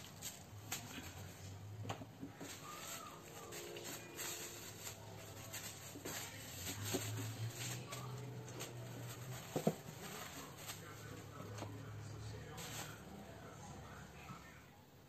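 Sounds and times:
plastic bag crinkling: 0:02.3 - 0:11.7, 0:12.4 - 0:13.1.

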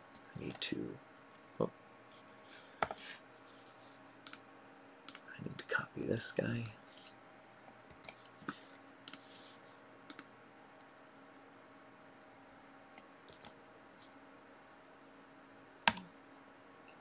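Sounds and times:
faint steady hum: 0:00.0 - 0:17.0
computer keyboard keystrokes: 0:15.9 - 0:16.1.

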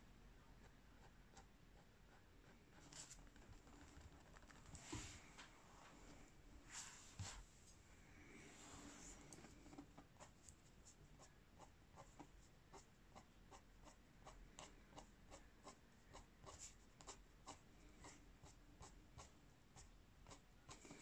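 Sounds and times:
colored pencil scratching on paper: 0:00.5 - 0:03.4, 0:08.8 - 0:21.0.

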